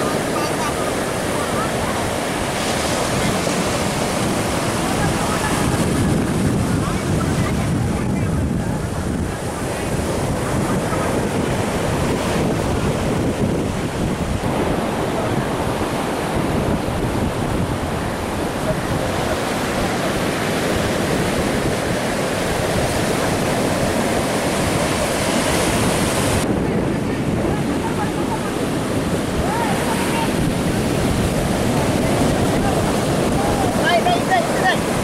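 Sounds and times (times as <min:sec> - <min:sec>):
sea surf breaking: 0:00.0 - 0:35.0
wind buffeting microphone: 0:00.0 - 0:35.0.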